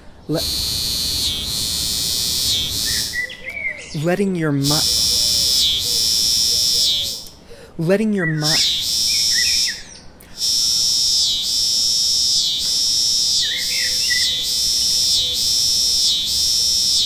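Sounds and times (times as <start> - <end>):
cicada buzzing: 0.3 - 3.4, 4.6 - 7.4, 8.4 - 17.0
faint bird chirps: 2.5 - 4.1, 8.2 - 10.0, 13.3 - 14.6.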